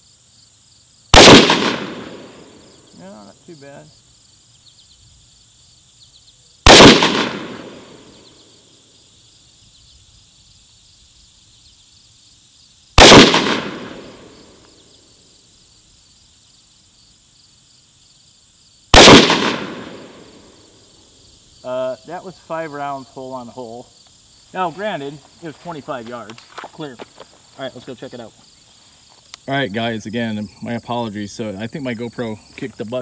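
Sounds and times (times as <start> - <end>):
rifle shots: 1.1 - 2.6, 6.6 - 8.2, 13.0 - 14.4, 18.9 - 20.5.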